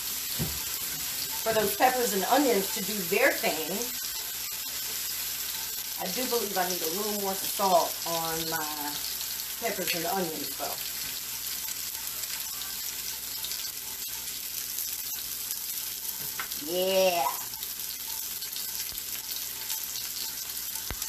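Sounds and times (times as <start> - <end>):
vegetables sizzling in a pan: 0.0 - 21.0.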